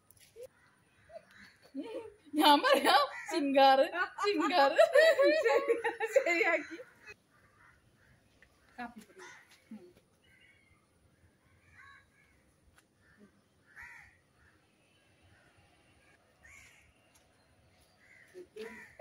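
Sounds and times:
crows cawing: 6.6s - 9.7s, 11.6s - 12.4s, 13.0s - 14.6s, 16.4s - 17.0s, 18.0s - 19.0s.

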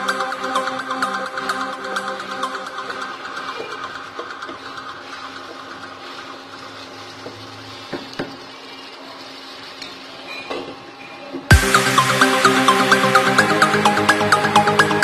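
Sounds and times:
loud electronic music: 0.0s - 7.8s, 11.5s - 15.0s
masala sizzling and bubbling: 2.6s - 12.0s.

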